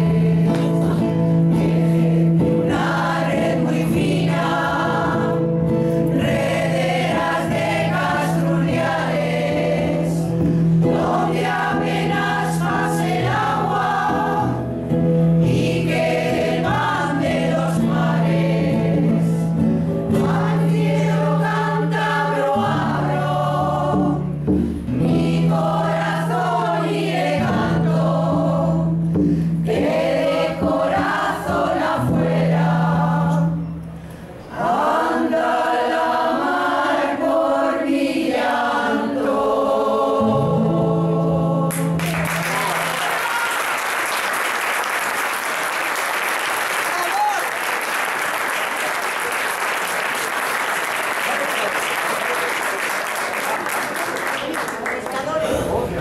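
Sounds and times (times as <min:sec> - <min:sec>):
women's choir singing folk song: 0:00.0 - 0:33.8, 0:34.5 - 0:42.1
classical guitar: 0:00.0 - 0:34.5.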